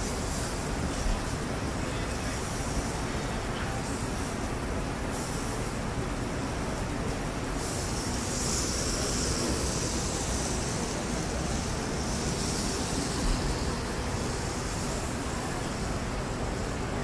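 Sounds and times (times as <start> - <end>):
steady rushing noise with hiss: 0.0 - 17.0.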